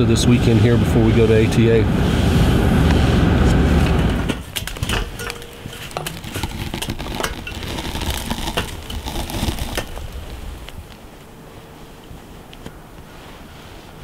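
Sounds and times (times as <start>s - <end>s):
gear clinking on metal frame: 4.4s - 10.0s.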